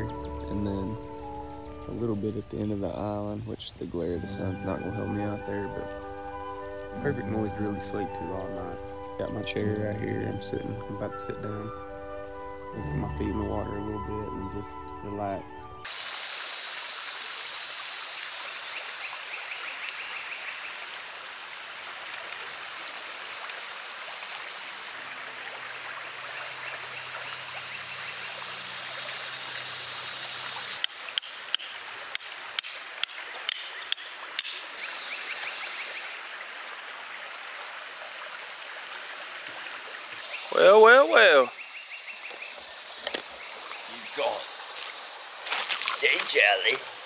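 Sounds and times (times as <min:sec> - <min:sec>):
creek rushing over rocks: 0:15.9 - 0:34.9, 0:42.3 - 0:47.0.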